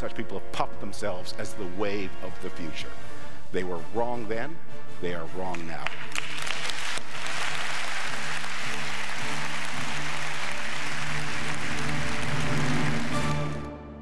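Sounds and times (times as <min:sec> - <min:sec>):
background music with low notes: 0:00.0 - 0:14.0
audience applauding: 0:05.8 - 0:13.7.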